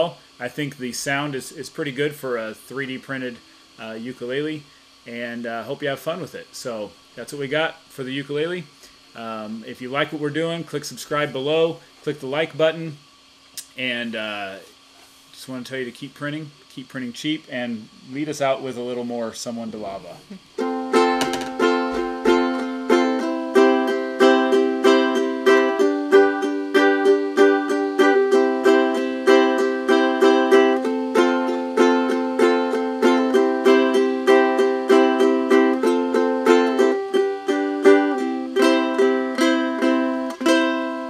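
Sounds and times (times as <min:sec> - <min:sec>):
ukulele strumming: 0:20.6 - 0:41.0.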